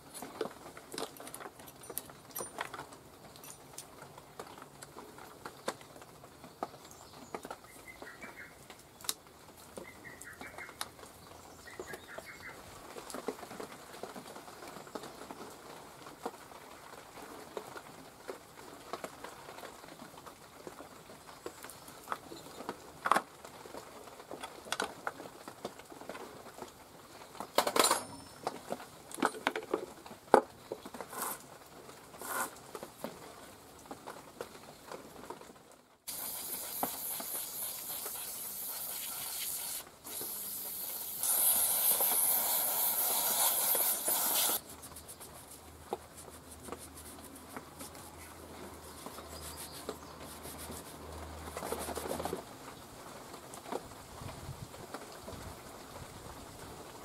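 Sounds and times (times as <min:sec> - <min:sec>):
tools and parts clicking: 0:00.1 - 0:03.9
spraying hiss: 0:36.1 - 0:45.4.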